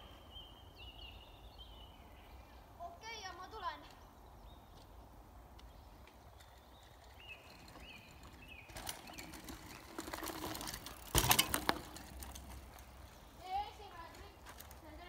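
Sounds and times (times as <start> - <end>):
bike rattles and clicks: 5.6 - 15.0
bike tyres rolling over leaves: 6.2 - 15.0.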